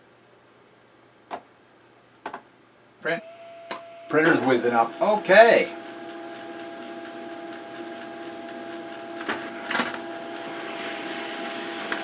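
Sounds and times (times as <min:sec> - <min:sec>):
printer whine: 0:03.2 - 0:12.0
printer clicks: 0:05.8 - 0:10.0.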